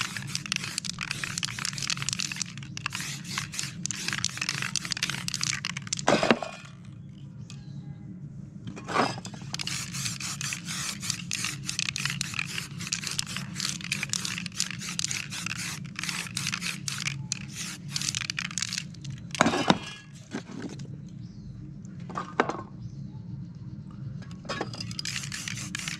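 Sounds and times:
paper crackling and scraping: 0.0 - 6.0
spray-paint can hissing: 0.0 - 6.0, 9.4 - 19.0, 24.8 - 25.9.

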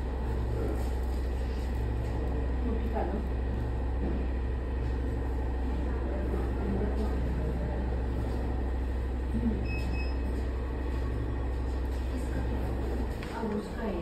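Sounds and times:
faint murmur: 0.0 - 14.0
steady low hum: 0.0 - 14.0
short electronic beep: 9.6 - 10.3.

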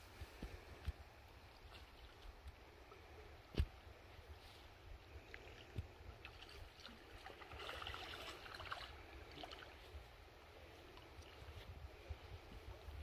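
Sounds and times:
light water noise: 0.0 - 13.0
wind rumbling on microphone: 9.0 - 13.0.

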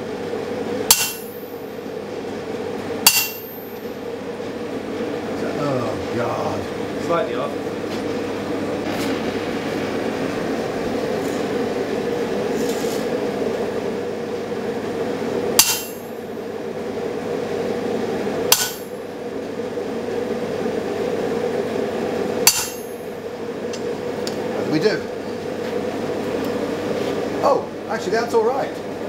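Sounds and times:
gas forge roaring: 0.0 - 29.0
hammer striking metal: 0.9 - 1.4, 3.0 - 3.8, 15.6 - 16.2, 18.5 - 19.0, 22.4 - 23.1.

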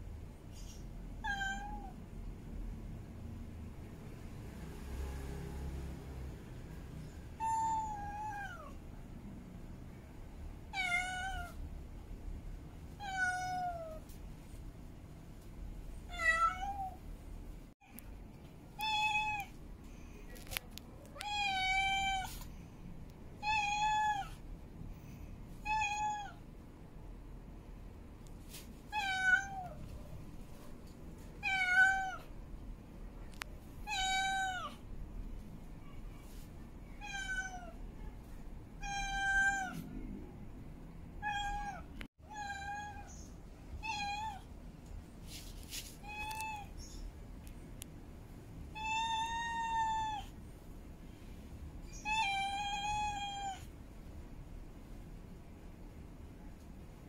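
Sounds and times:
cat meowing: 1.2 - 2.0, 7.4 - 8.8, 10.7 - 11.6, 13.0 - 14.0, 16.1 - 17.0, 18.8 - 19.5, 21.2 - 22.4, 23.4 - 24.4, 25.6 - 26.4, 28.9 - 29.8, 31.4 - 32.3, 33.8 - 34.8, 36.9 - 37.8, 38.8 - 39.9, 41.2 - 44.5, 46.0 - 47.0, 48.7 - 50.4, 51.9 - 53.7.

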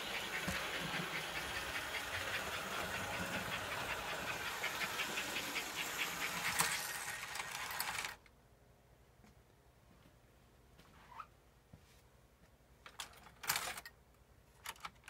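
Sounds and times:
model steam locomotive hiss: 0.0 - 8.1
wheels clicking on rails: 0.0 - 8.2.

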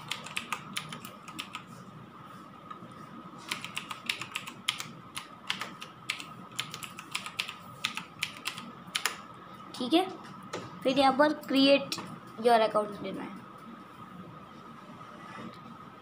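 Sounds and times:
computer keyboard typing: 0.0 - 1.8, 3.4 - 9.2.

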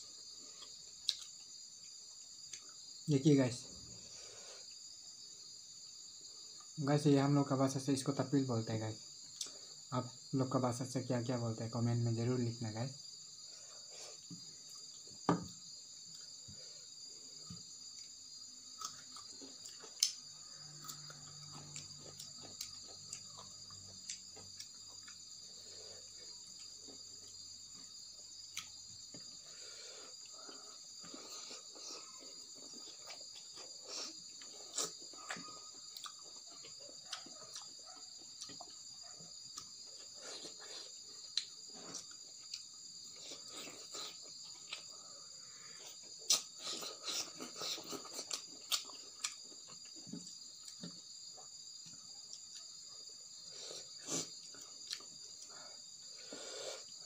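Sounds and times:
crickets chirring: 0.0 - 57.0
person chewing food: 0.2 - 3.0, 15.9 - 57.0.

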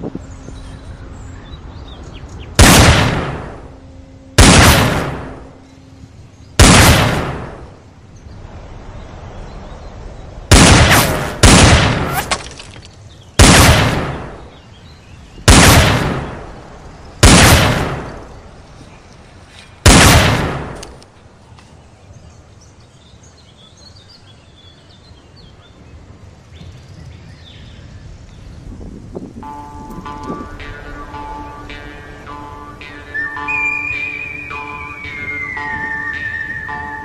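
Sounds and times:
gunshots: 2.6 - 3.6, 4.4 - 5.5, 6.6 - 7.7, 10.5 - 12.5, 13.4 - 14.4, 15.5 - 16.5, 17.2 - 18.3, 19.8 - 20.8.

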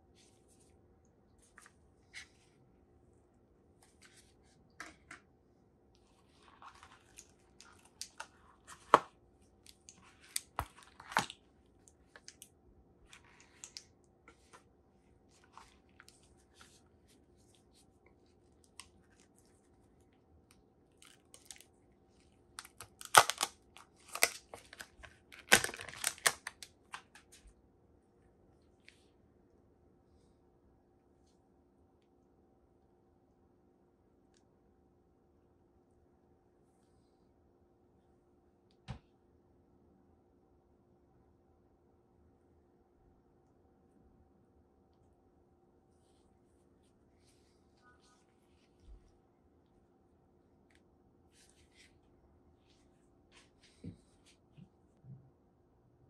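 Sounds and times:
plastic film peeled off: 22.6 - 27.0.

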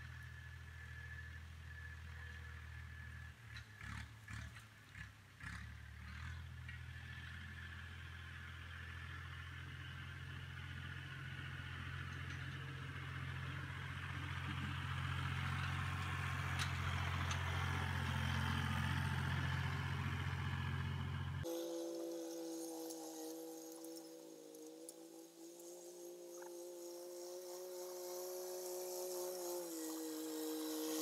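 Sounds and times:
tractor engine running: 0.0 - 31.0
blade dragging over dirt: 21.4 - 31.0.

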